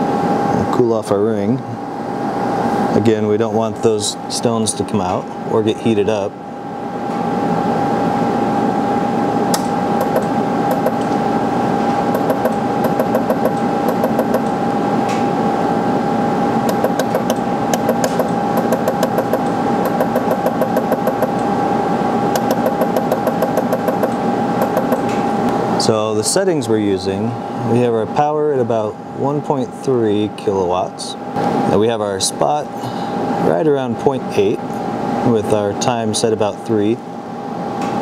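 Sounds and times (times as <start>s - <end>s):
steady hum: 0.0s - 38.0s
laser welder ticking: 9.6s - 11.1s, 12.1s - 14.5s, 16.6s - 21.4s, 22.4s - 25.1s.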